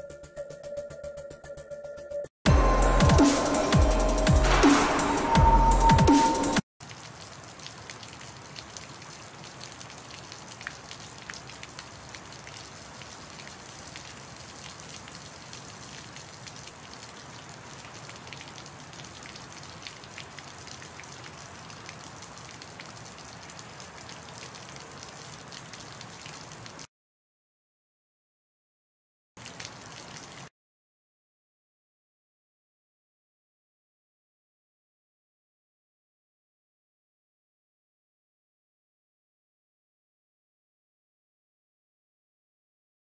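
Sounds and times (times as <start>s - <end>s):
rain hiss with drop ticks: 6.8s - 26.9s.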